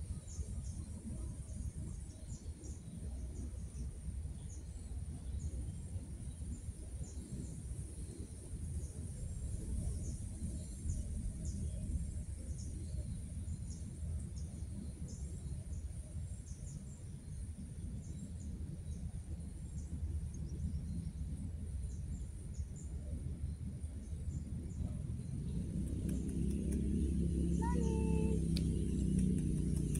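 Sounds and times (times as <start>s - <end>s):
low rumble: 23.2s - 29.9s
small birds chirping: 23.9s - 29.9s.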